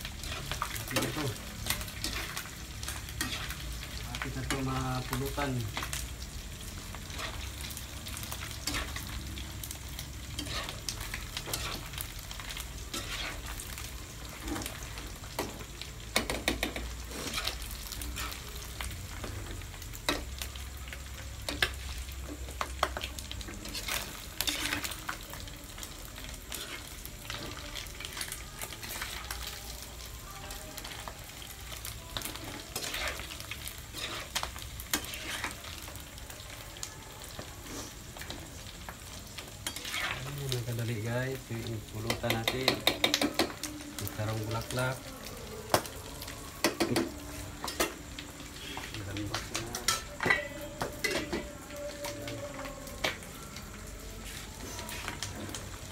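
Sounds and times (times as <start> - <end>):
meat sizzling in hot oil: 0.0 - 55.9
metal spatula scraping: 0.2 - 3.6, 10.3 - 14.9, 16.7 - 18.4, 23.5 - 25.2, 26.5 - 29.2, 32.3 - 35.7, 39.6 - 40.3.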